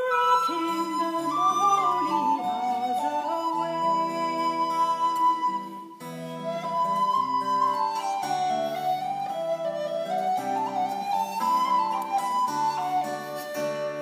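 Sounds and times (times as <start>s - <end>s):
acoustic guitar accompaniment: 0.0s - 14.0s
recorder playing slow melody: 0.0s - 14.0s.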